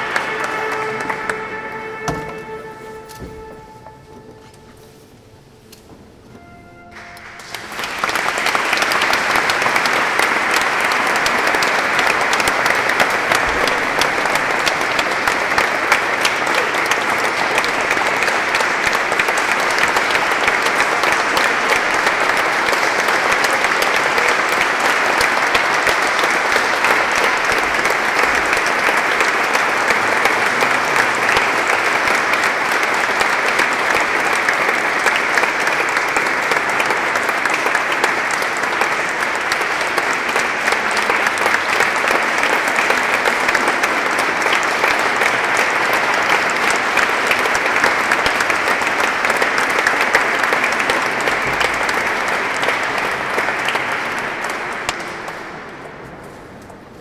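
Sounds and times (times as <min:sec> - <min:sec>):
audience applauding: 0:00.0 - 0:57.0.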